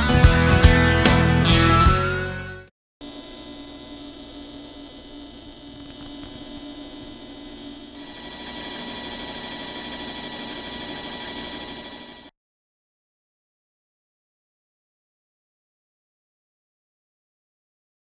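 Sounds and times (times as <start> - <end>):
lathe motor hum and whine: 3.0 - 12.3.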